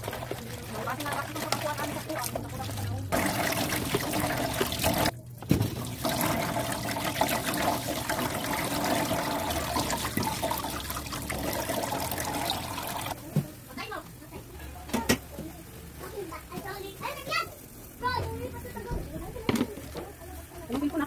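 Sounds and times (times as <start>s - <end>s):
cabbage rinsed by hand: 0.0s - 13.4s
tap water running: 0.0s - 21.0s.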